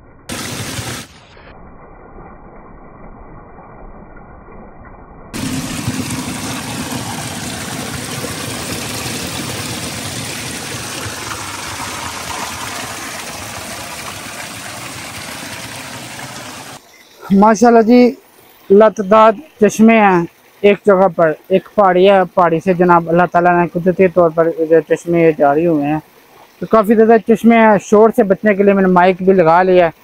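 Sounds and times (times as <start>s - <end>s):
water splashing over stones: 0.3s - 1.4s, 5.4s - 16.9s.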